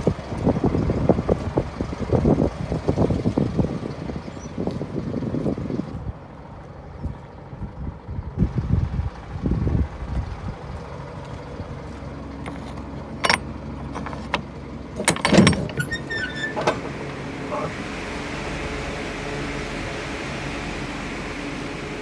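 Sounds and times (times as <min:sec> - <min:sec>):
metal door latches clanking: 0:13.2 - 0:17.0.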